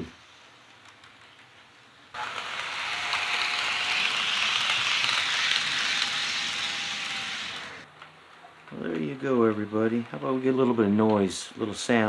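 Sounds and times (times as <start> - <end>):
model train wheels hissing on track: 2.2 - 7.9.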